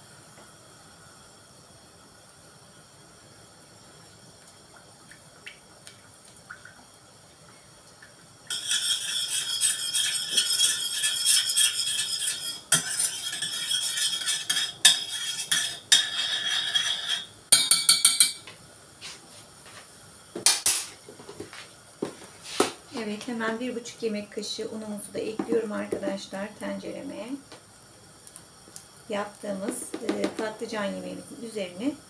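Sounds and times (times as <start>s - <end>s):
metal utensil scraping a pot: 8.5s - 17.3s.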